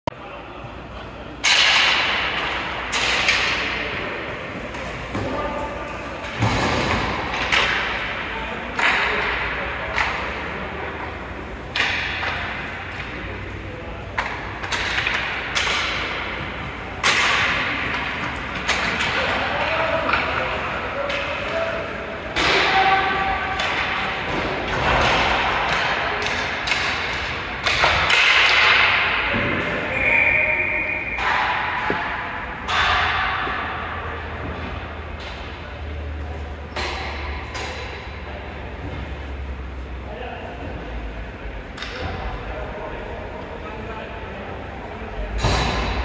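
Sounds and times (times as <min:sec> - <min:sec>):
sticks and puck knocking: 0:14.1 - 0:21.5.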